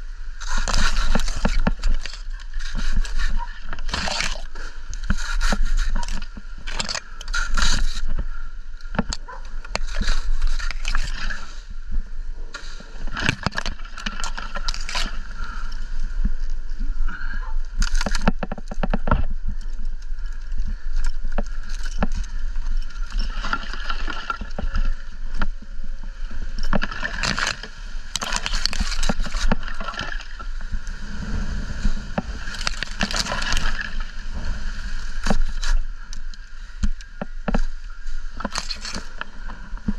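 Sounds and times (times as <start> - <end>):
wind buffeting microphone: 27.9 - 38.4.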